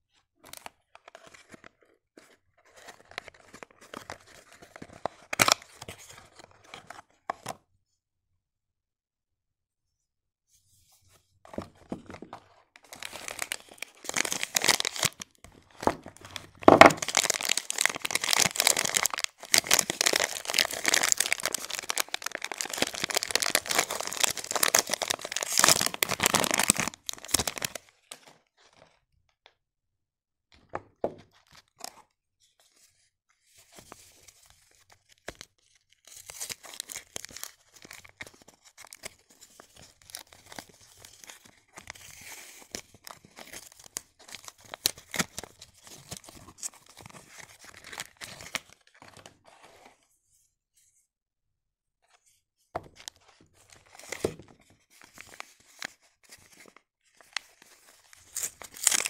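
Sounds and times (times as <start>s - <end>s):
plastic wrapper crinkling and tearing: 0.4s - 7.0s, 12.8s - 28.7s, 35.2s - 49.2s, 53.0s - 59.0s
cardboard box rustling: 16.2s - 27.8s.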